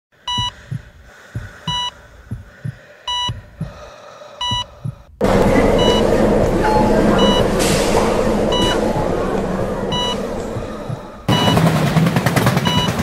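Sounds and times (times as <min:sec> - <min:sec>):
low heartbeat thumps: 0:00.2 - 0:11.6
heart monitor beeping: 0:00.2 - 0:11.7, 0:12.5 - 0:13.0
faint high beeps: 0:04.4 - 0:11.6
dense steady noise with low hum: 0:05.2 - 0:11.4.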